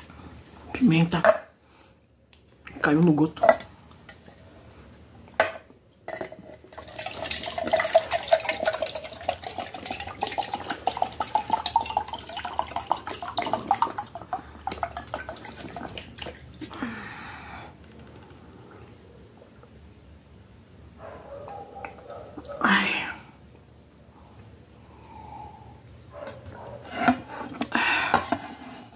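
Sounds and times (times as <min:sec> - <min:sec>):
water glugging into a plastic mug: 0:06.6 - 0:16.8.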